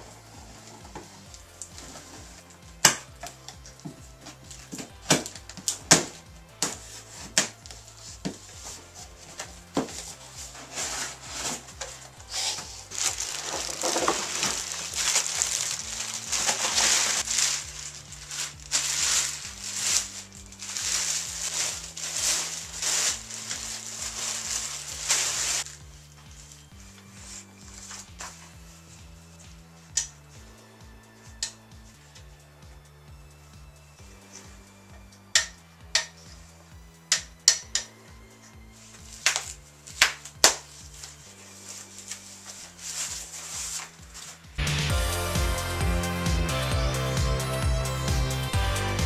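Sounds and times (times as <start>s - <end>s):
plastic wrapping crinkling: 0.0s - 30.2s, 38.8s - 44.7s
tape and cardboard tearing: 0.1s - 25.8s, 39.2s - 41.2s, 41.8s - 44.8s.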